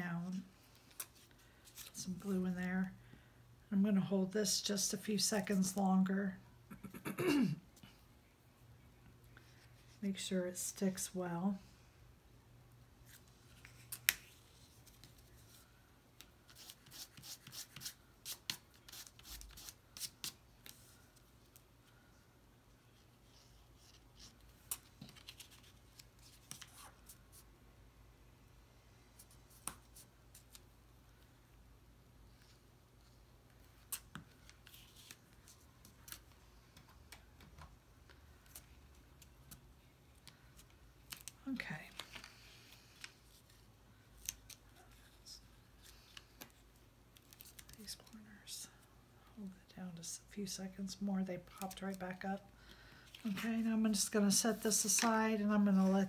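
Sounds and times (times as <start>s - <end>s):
paper rustling: 23.2s - 27.4s.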